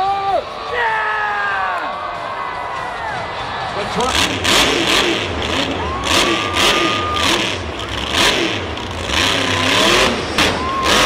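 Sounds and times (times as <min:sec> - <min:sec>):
truck engine revving: 0:03.7 - 0:11.0.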